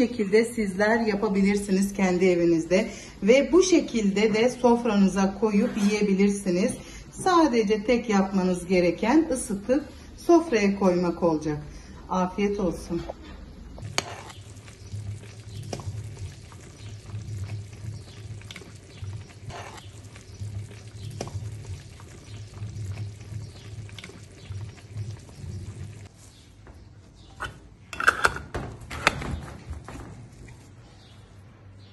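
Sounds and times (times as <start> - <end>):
wet pouring and sloshing: 13.8 - 26.2.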